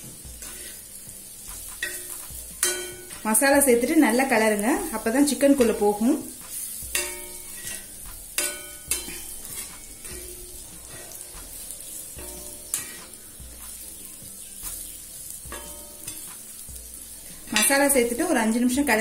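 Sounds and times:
chicken sizzling in a pan: 0.0 - 19.0
metal spatula scraping: 0.0 - 19.0
spatula clinking against pan: 1.7 - 3.2, 6.8 - 13.8, 15.4 - 16.5.

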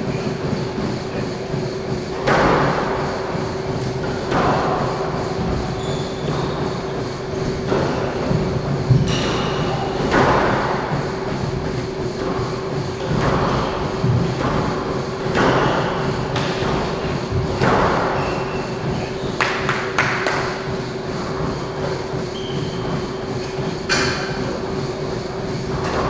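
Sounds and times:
steady low hum: 0.0 - 26.0
squash ball hits echoing: 2.2 - 3.0, 3.8 - 6.6, 7.3 - 11.0, 13.0 - 20.7.

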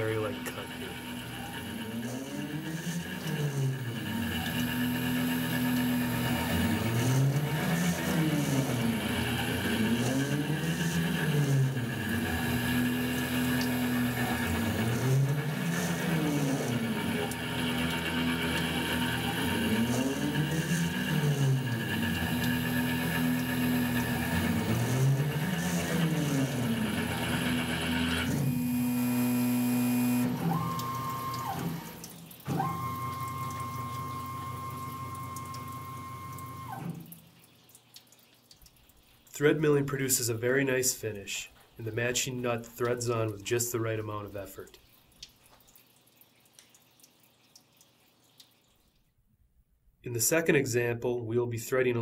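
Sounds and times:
milling machine tones gliding in pitch: 0.0 - 37.1
machine running hum: 0.0 - 37.2
coolant splashing: 0.0 - 49.6.

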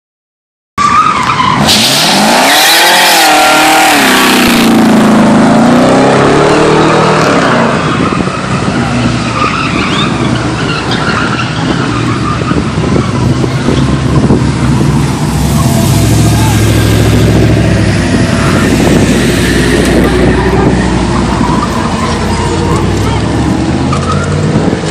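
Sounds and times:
tires spinning and squealing: 0.8 - 24.9
truck engine revving: 1.6 - 24.9.

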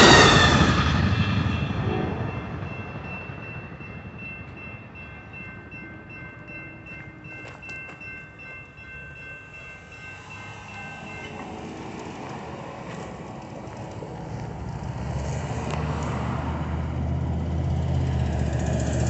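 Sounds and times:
crossing bell clanging: 0.0 - 14.2.

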